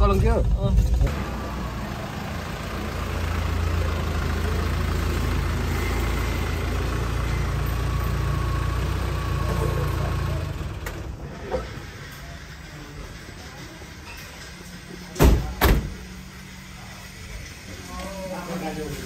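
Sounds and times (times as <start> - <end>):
vehicle engine and road noise: 0.0 - 19.0.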